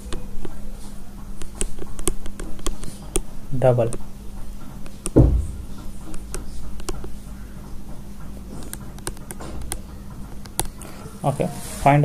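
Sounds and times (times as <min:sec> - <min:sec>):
low electrical hum: 0:00.0 - 0:12.0
pen tapping writing surface: 0:01.4 - 0:10.8
dull low thump: 0:05.2 - 0:05.7.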